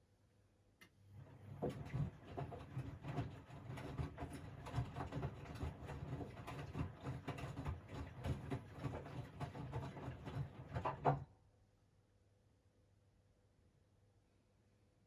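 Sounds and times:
washing machine motor hum: 0:01.1 - 0:11.3
laundry tumbling with thuds: 0:01.4 - 0:11.2.

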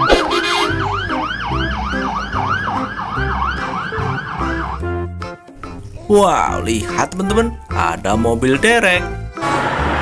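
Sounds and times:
fire engine siren yelping: 0:00.0 - 0:05.3.

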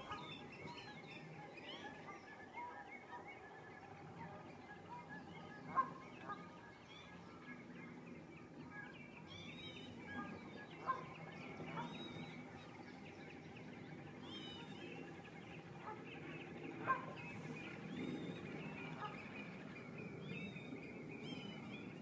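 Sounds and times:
birds chirping and whistling: 0:00.0 - 0:22.0
sharp bird calls: 0:00.0 - 0:22.0.

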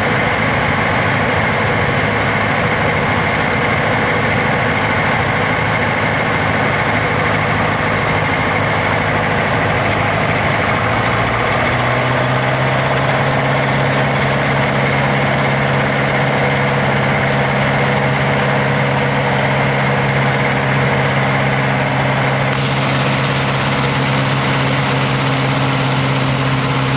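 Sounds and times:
light aircraft engine drone: 0:00.0 - 0:26.9
rush of airflow: 0:22.4 - 0:26.9.

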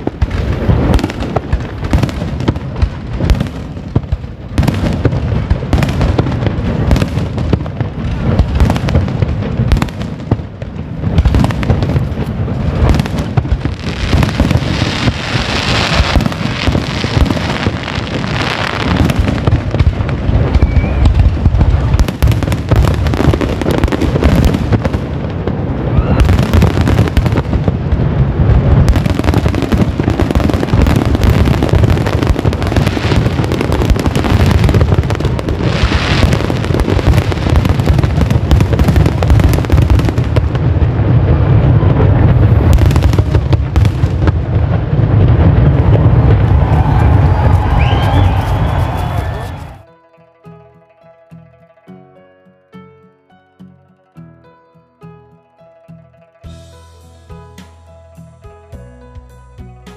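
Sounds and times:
crackling hiss: 0:00.0 - 0:49.8
fireworks bursting: 0:00.0 - 0:49.9.

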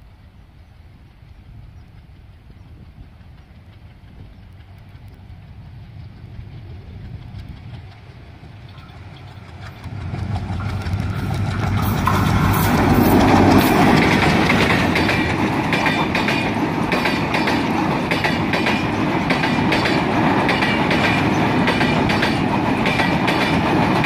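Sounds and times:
train clattering on rails: 0:01.9 - 0:24.0
locomotive engine throbbing: 0:02.9 - 0:24.0.

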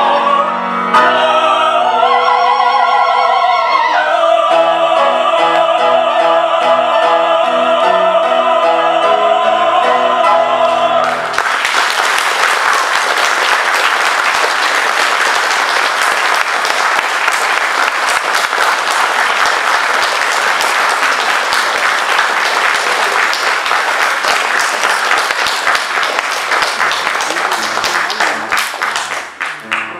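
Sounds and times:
audience applauding: 0:11.0 - 0:29.9.

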